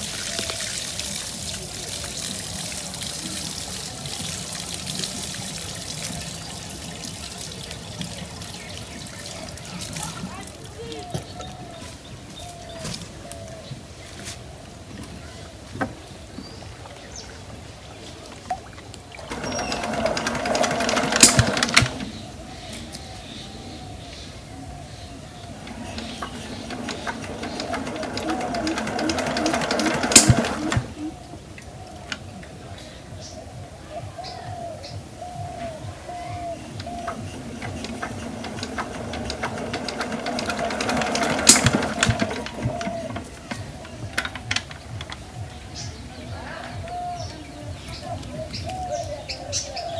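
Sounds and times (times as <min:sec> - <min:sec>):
diesel engine cranking clatter: 0:19.2 - 0:22.3, 0:25.4 - 0:31.1, 0:36.7 - 0:45.2.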